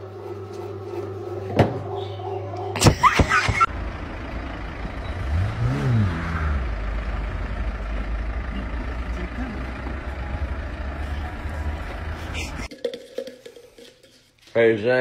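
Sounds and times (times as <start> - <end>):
street traffic: 0.0 - 12.7
vehicle passing: 3.6 - 12.7.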